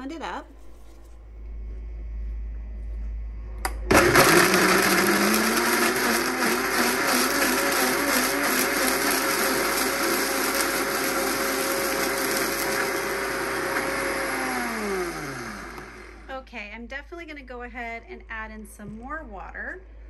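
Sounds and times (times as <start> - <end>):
blender running: 3.7 - 16.3
blender motor spinning down: 3.8 - 16.3.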